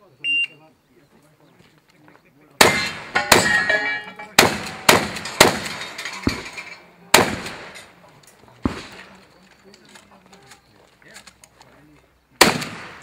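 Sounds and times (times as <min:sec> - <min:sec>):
shotgun shots: 0:02.6 - 0:07.9, 0:08.6 - 0:09.1, 0:12.4 - 0:13.0.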